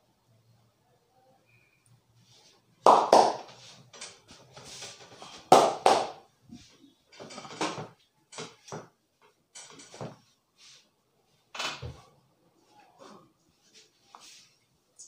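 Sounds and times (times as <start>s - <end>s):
hands slapping a back: 2.9s - 3.6s, 5.5s - 6.2s.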